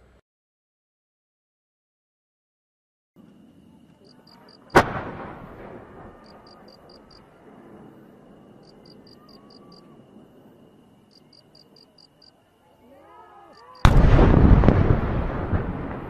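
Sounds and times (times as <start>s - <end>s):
insects chirping: 3.2s - 16.0s.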